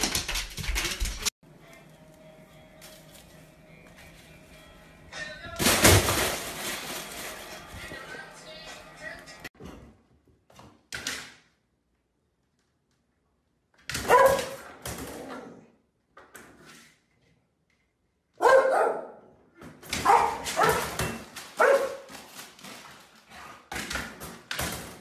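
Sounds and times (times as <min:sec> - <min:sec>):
dog barking: 0:14.0 - 0:14.6, 0:18.4 - 0:19.3, 0:20.0 - 0:21.0, 0:21.6 - 0:22.1.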